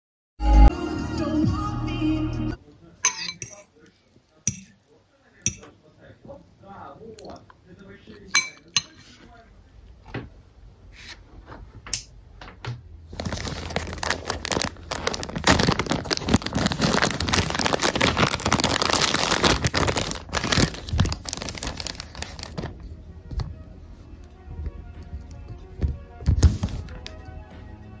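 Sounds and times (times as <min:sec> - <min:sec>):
packaging crinkling and tearing: 0:13.1 - 0:22.8.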